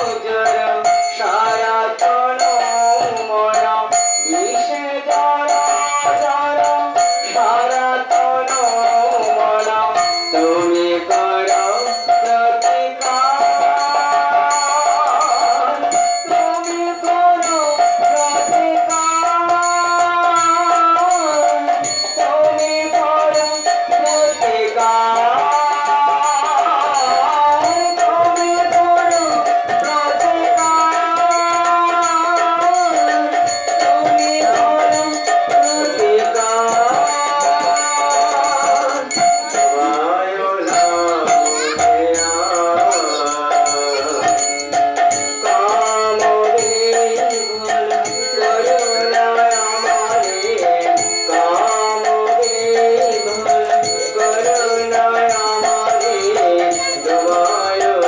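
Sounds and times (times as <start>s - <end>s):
harmonium melody: 0.0s - 50.8s
hand cymbals clashing: 0.0s - 58.0s
man singing: 0.0s - 58.0s.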